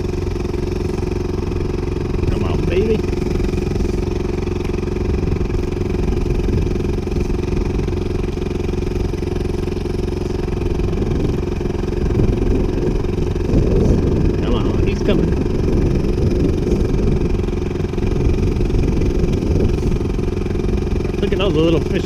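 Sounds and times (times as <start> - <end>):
outboard motor running: 0.0 - 22.0.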